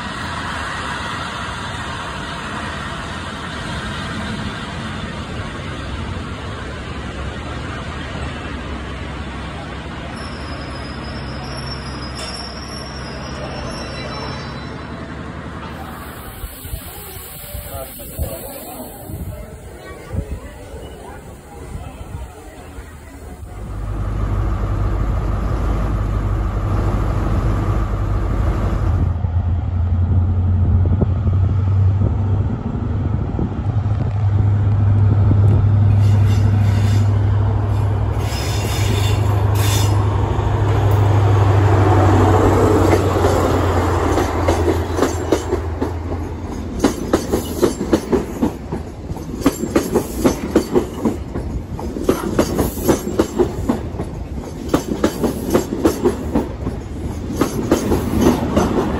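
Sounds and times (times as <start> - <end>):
diesel train drone: 0.0 - 58.9
train wheels clickety-clack: 42.2 - 58.9.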